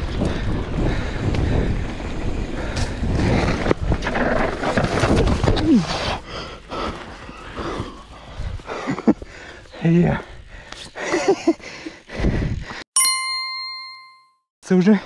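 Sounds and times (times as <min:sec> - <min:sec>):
mountain bike rattling on dirt trail: 0:00.0 - 0:09.6.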